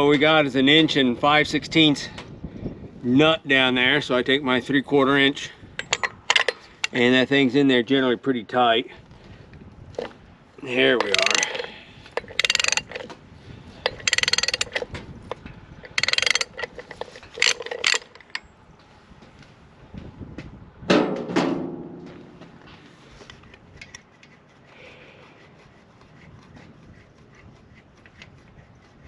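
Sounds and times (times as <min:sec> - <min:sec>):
metal parts being handled: 0:05.8 - 0:07.0, 0:10.8 - 0:13.2, 0:13.8 - 0:18.5
ratchet wrench clicking: 0:11.0 - 0:13.1, 0:13.8 - 0:14.9, 0:15.8 - 0:18.4.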